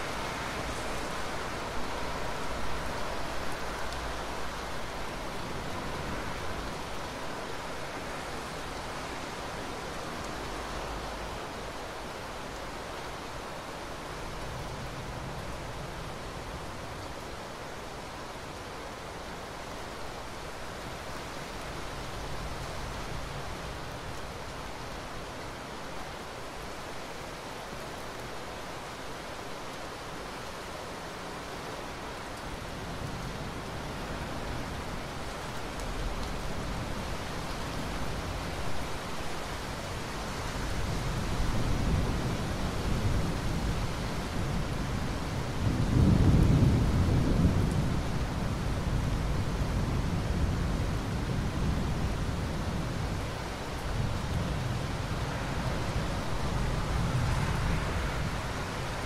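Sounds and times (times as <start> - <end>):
steady rain hiss: 0.0 - 59.0
thunder rumbling: 45.6 - 51.3.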